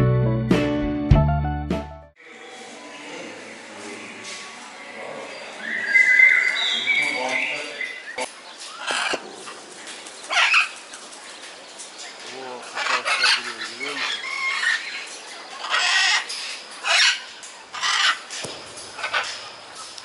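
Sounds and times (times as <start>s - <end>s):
macaws squawking: 5.6s - 11.1s, 12.4s - 20.0s.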